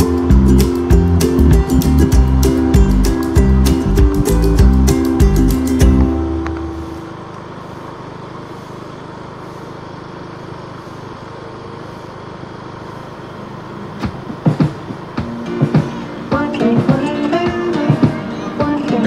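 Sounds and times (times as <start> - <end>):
background music: 0.0 - 7.0, 14.4 - 19.0
motorcycle engine: 0.0 - 19.0.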